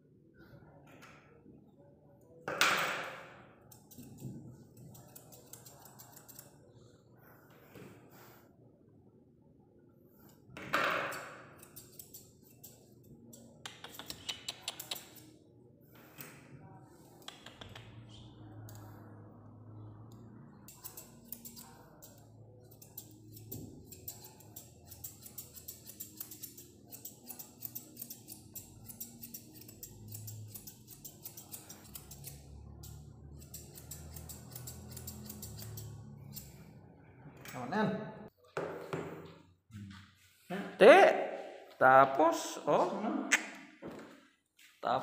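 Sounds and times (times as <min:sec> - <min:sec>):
grooming shears snipping: 0:11.6 - 0:15.3.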